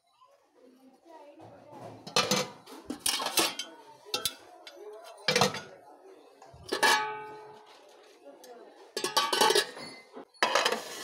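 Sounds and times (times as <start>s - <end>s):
metal pot clanking: 2.0s - 5.8s, 6.6s - 7.8s, 8.9s - 11.0s.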